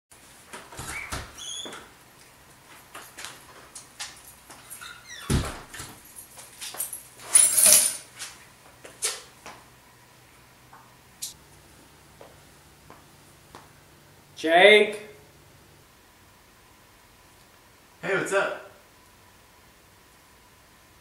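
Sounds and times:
door squeaking: 0.8s - 1.9s, 4.6s - 5.9s
door closing thud: 5.2s - 6.0s.

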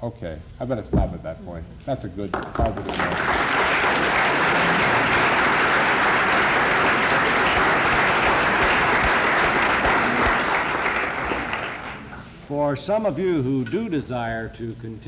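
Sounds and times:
audience applauding: 2.3s - 12.3s.

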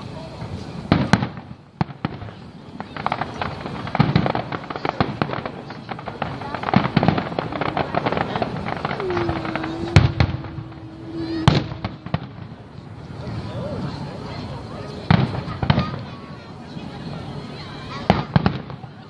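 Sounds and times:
fireworks crackling: 0.0s - 19.0s
fireworks booms: 0.4s - 13.5s, 15.0s - 16.1s, 18.0s - 19.0s
steady low tone: 7.1s - 13.2s.

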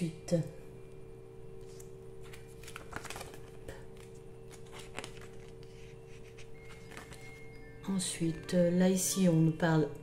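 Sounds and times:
faint steady hum: 0.0s - 10.0s
paper pages rustling: 1.6s - 7.4s.

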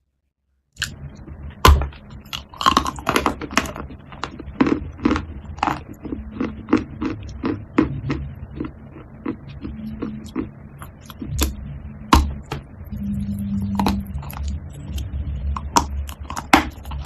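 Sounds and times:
crunchy chewing of chalk: 2.2s - 11.6s.

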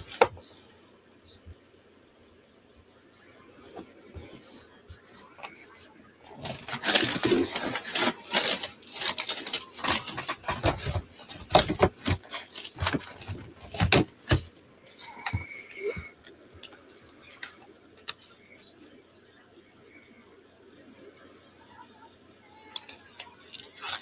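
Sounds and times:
paper rustling and scratching: 0.0s - 0.4s, 3.6s - 16.1s, 22.7s - 24.0s.

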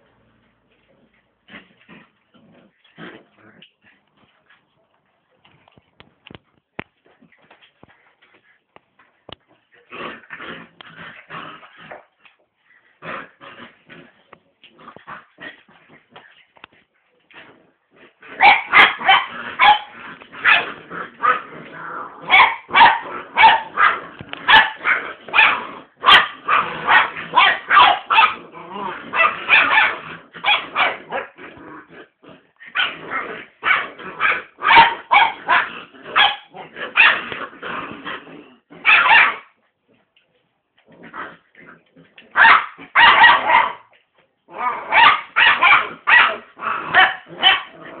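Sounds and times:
puppies barking and yapping: 22.3s - 28.4s, 33.7s - 37.3s, 42.3s - 43.9s.

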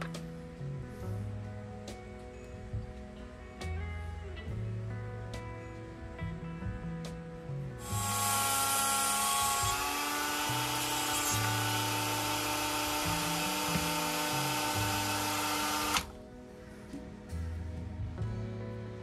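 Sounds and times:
rotary tool whining: 7.8s - 16.2s.

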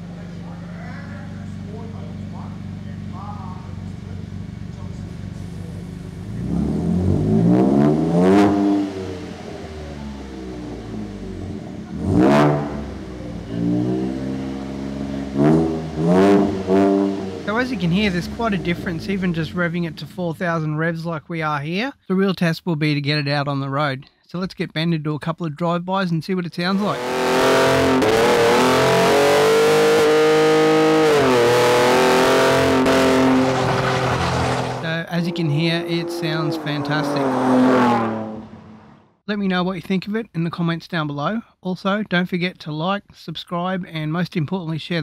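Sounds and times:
truck engine revving: 0.0s - 20.4s, 26.7s - 39.2s.

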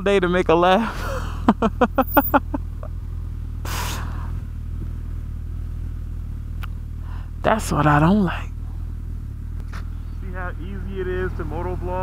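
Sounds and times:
motorcycle engine idling: 0.1s - 12.0s
laughter: 0.8s - 2.9s.

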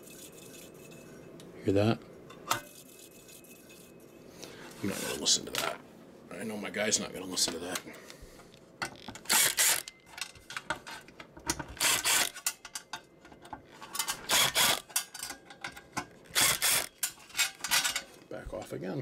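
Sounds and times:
ratcheting screwdriver clicking: 9.0s - 9.9s, 11.8s - 12.5s, 16.3s - 17.0s.

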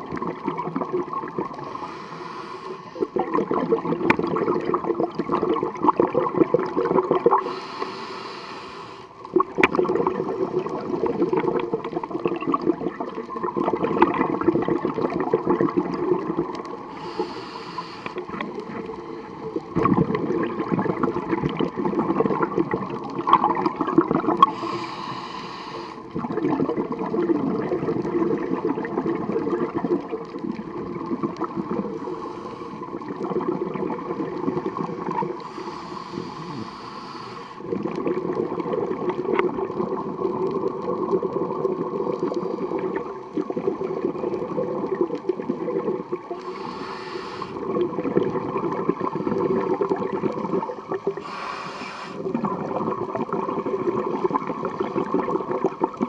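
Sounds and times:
exhaled bubbles underwater: 0.0s - 56.0s
regulator inhalation hiss: 1.6s - 3.1s, 7.4s - 9.2s, 16.9s - 19.3s, 24.5s - 26.1s, 32.0s - 32.9s, 35.4s - 37.7s, 46.4s - 47.7s, 51.2s - 52.3s.

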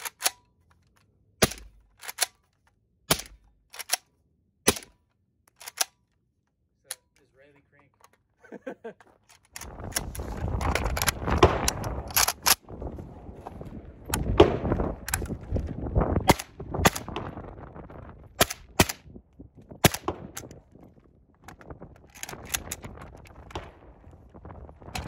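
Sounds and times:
suppressed rifle shots: 1.4s - 2.3s, 3.1s - 4.0s, 4.7s - 5.0s, 11.2s - 12.6s.

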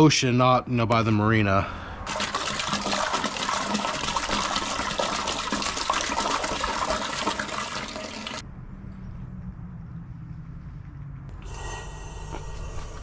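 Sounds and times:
water splashing into a metal pot: 2.1s - 8.4s
low hum: 8.4s - 13.0s.

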